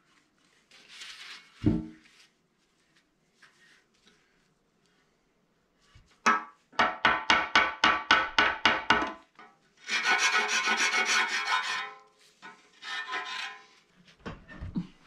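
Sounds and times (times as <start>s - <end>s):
metal scraping along metal: 9.8s - 13.9s.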